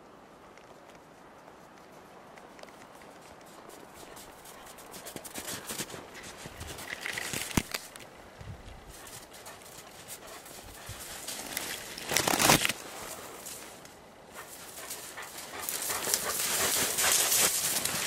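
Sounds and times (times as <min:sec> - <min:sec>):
rustling branches and snow: 0:00.0 - 0:18.0
dog panting: 0:08.9 - 0:11.4, 0:14.3 - 0:18.0.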